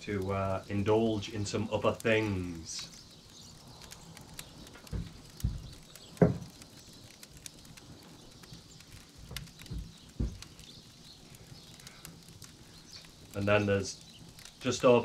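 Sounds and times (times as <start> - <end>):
wood fire crackling: 0.0 - 15.0.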